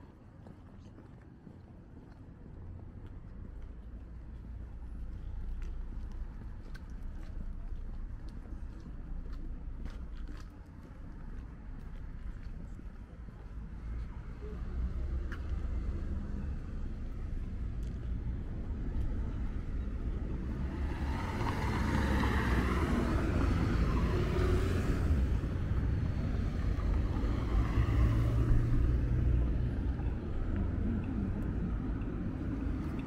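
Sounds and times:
city traffic rumble: 0:00.0 - 0:33.0
car passing close by: 0:20.5 - 0:29.8.

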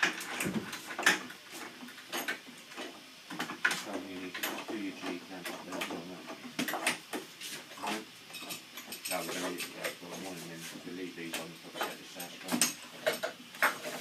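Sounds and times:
metal clamps clicking and knocking: 0:11.8 - 0:13.9.

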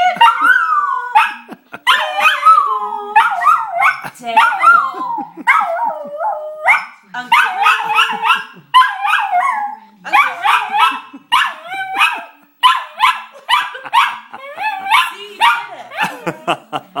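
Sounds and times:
small dog howl-barking: 0:00.2 - 0:13.2.

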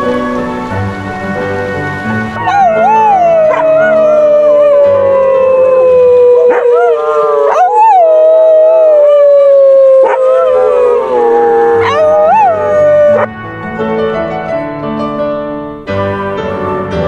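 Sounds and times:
background music: 0:00.0 - 0:17.0
dog howling: 0:02.4 - 0:13.3.

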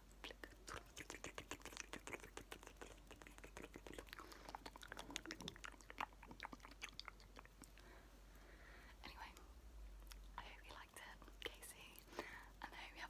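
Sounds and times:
wet mouth clicks and smacks: 0:00.2 - 0:07.8.

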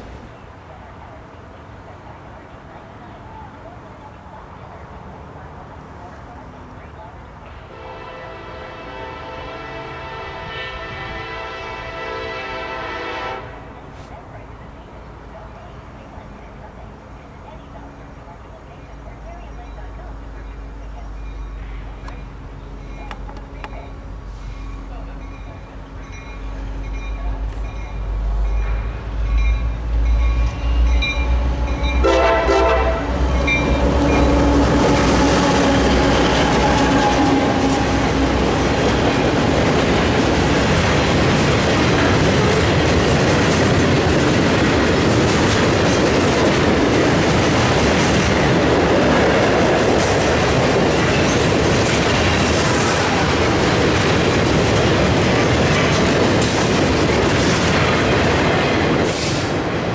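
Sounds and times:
train horn: 0:07.6 - 0:13.6, 0:30.2 - 0:39.3
train wheels rumbling on rails: 0:08.3 - 0:59.9.

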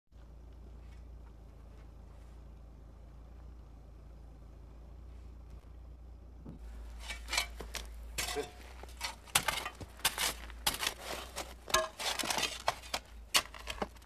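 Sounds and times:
building materials clinking and knocking: 0:06.6 - 0:14.0.

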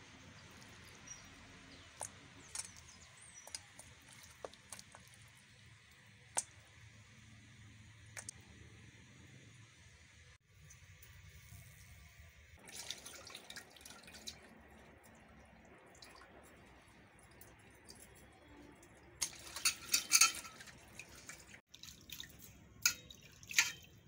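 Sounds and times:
water splashing in a pot: 0:00.0 - 0:08.4, 0:10.4 - 0:24.0.

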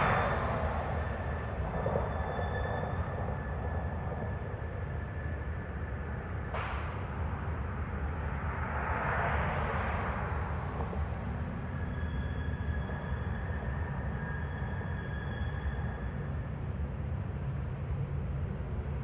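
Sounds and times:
sudden rush of noise: 0:00.0 - 0:01.6
train wheels rumbling on rails: 0:00.0 - 0:19.0.

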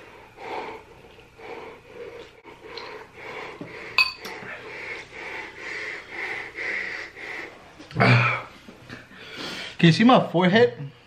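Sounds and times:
heavy panting breaths: 0:00.0 - 0:09.8
spoon clinking against bowl: 0:04.0 - 0:04.3.

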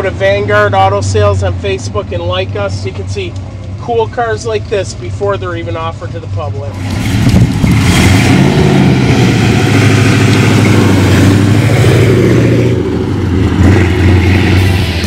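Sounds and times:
car engine accelerating past: 0:06.8 - 0:15.0.

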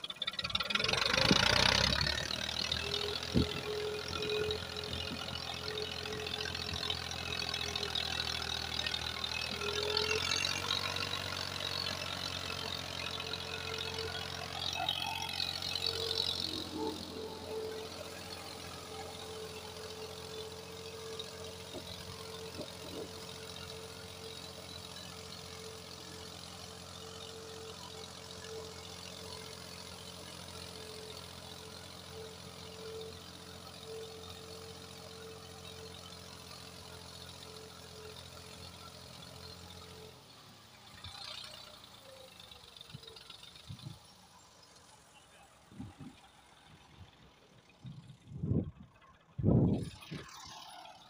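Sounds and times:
tractor diesel engine running: 0:00.0 - 0:51.0.

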